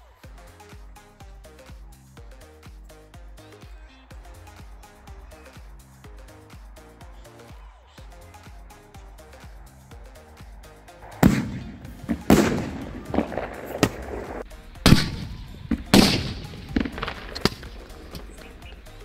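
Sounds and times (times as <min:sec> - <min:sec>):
firecrackers exploding under iron tub: 0:11.1 - 0:18.4
small firecracker cracks: 0:11.2 - 0:18.4.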